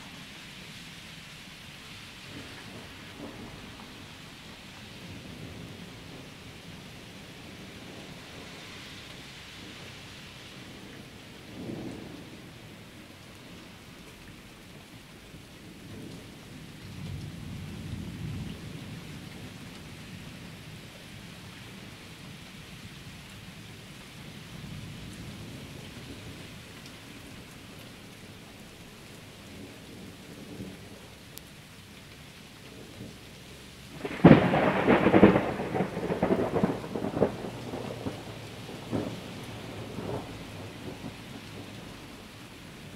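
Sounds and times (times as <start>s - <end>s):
steady rain falling: 0.0s - 42.9s
thunder rumbling: 32.8s - 42.9s.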